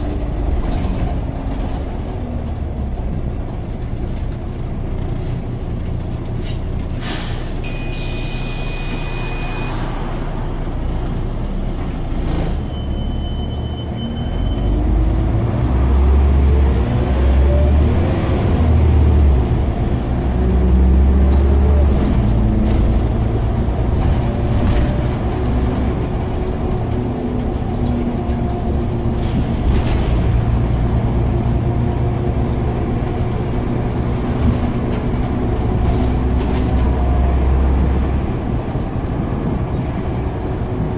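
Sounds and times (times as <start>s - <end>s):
bus engine pulling away: 0.0s - 40.9s
electronic beep: 7.6s - 10.0s, 12.6s - 14.7s.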